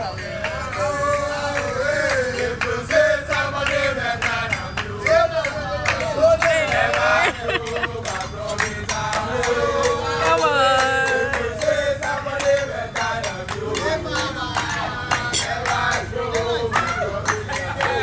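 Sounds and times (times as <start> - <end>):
men singing in chorus: 0.0 - 18.0
rhythmic hand clapping: 0.0 - 18.0.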